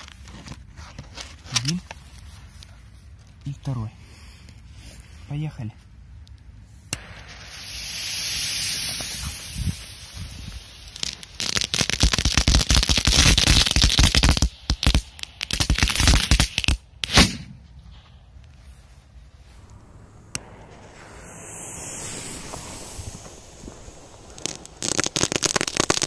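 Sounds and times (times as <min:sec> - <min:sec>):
burning fuses hissing: 0:06.7 - 0:17.2, 0:19.4 - 0:26.0
firecrackers crackling and popping: 0:06.9 - 0:17.5, 0:19.4 - 0:26.0
sharp loud bang: 0:17.1 - 0:17.7.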